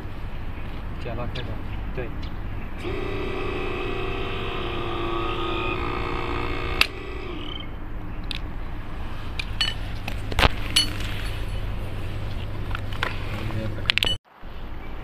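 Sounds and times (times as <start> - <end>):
hydraulic pump whining: 2.8 - 7.8
metallic clinks and knocks: 9.6 - 9.9, 10.7 - 11.6.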